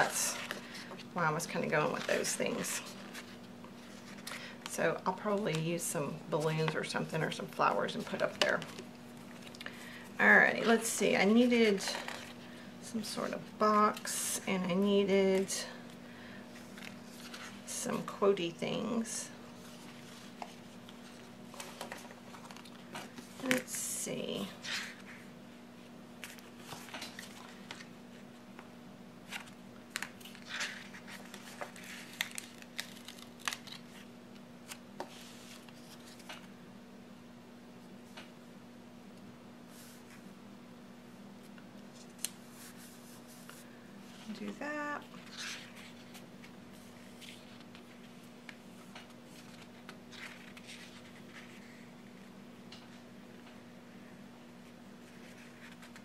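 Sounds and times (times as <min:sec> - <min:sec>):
faint steady hum: 0:00.0 - 0:56.0
paper rustling: 0:16.6 - 0:18.1, 0:19.6 - 0:23.8, 0:26.2 - 0:27.9, 0:29.2 - 0:36.5, 0:45.2 - 0:51.9, 0:55.0 - 0:56.0.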